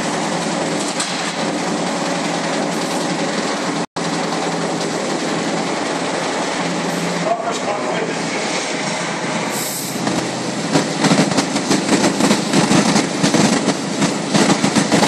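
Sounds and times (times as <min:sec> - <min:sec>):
circular saw cutting sheet metal: 0:05.2 - 0:10.7.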